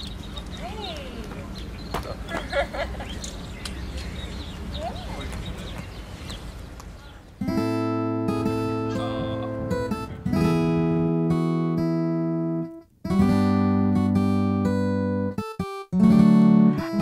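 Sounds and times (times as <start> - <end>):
acoustic guitar chords strummed: 7.4 - 17.0.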